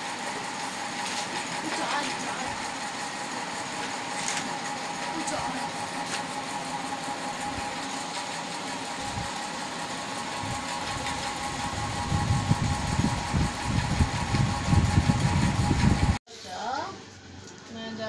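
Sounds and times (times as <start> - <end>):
motor humming: 0.0 - 16.2.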